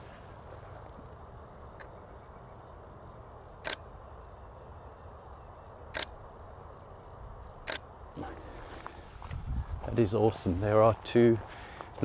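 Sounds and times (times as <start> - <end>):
outdoor background noise: 0.0 - 12.0
camera shutter clicks: 3.6 - 3.8, 5.9 - 6.2, 7.6 - 7.9.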